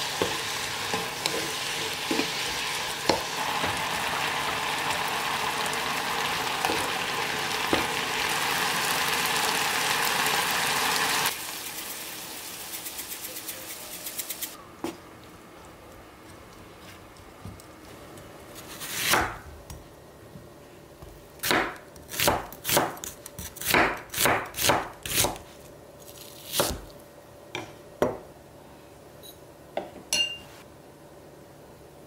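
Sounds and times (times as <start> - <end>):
knife slicing onion on board: 18.5 - 19.5, 21.4 - 26.9.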